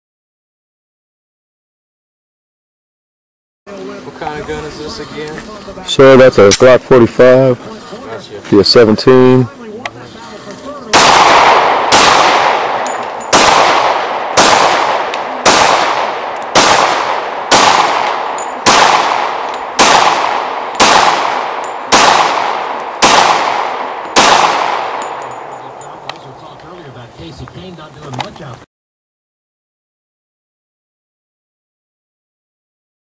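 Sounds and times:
pistol shots with echo: 0:10.9 - 0:26.4.

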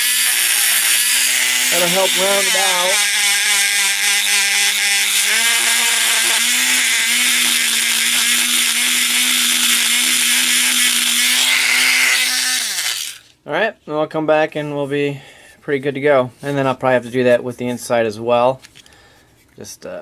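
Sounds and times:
rotary tool sanding clay: 0:00.0 - 0:13.2.

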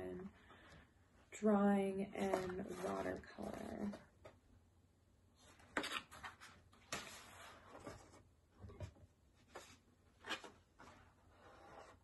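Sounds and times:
paper sheets rustling: 0:02.2 - 0:04.0.

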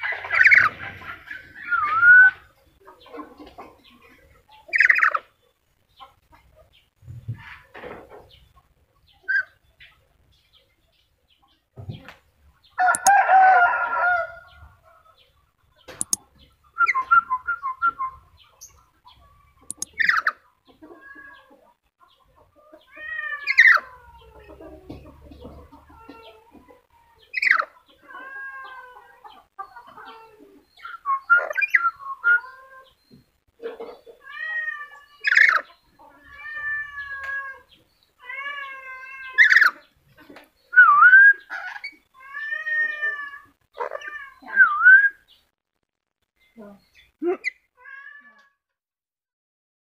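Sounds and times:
parrot squawk: 0:39.3 - 0:39.8.

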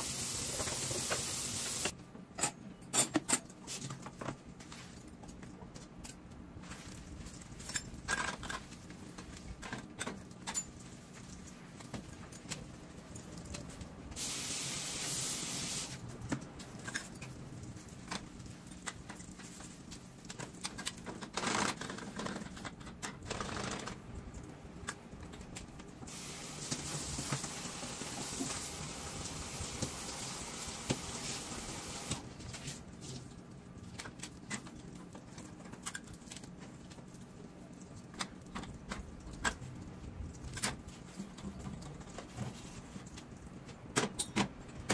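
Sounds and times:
hissing noise: 0:00.0 - 0:01.9, 0:14.2 - 0:16.0.

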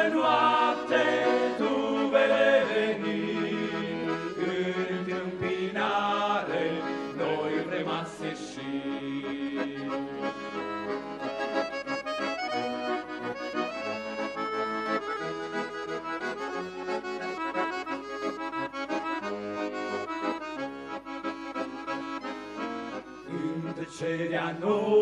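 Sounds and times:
piano accordions playing: 0:00.0 - 0:24.7.

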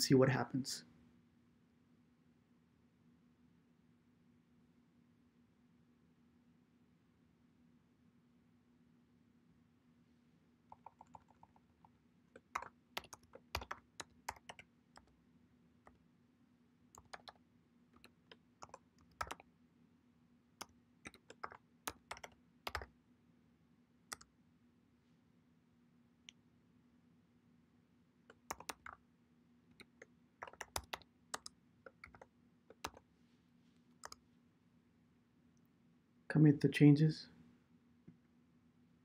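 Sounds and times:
faint low hum: 0:00.0 - 0:39.0.

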